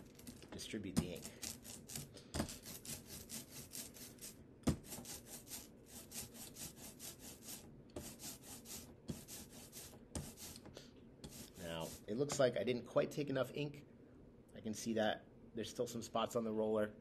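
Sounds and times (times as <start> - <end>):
rubber roller rolling through ink: 0.0 - 12.4.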